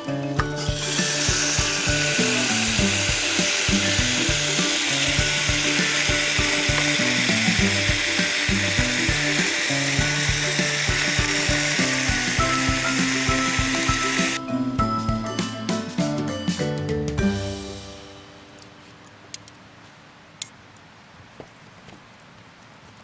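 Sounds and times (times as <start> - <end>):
background music with bouncy beat: 0.0 - 18.1
pot roast sizzling: 0.6 - 14.4.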